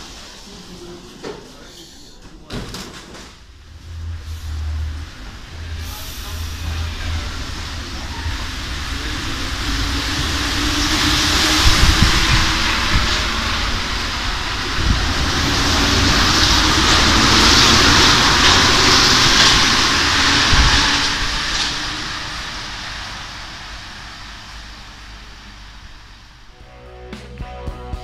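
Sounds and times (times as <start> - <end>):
train rumble: 0.0 - 28.0
tyres and running gear hissing: 4.2 - 13.5.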